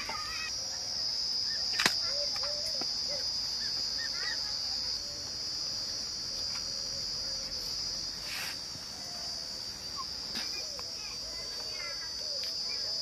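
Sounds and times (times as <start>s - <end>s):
faint bird chirps: 0.0s - 5.3s
insects shrilling: 0.0s - 13.0s.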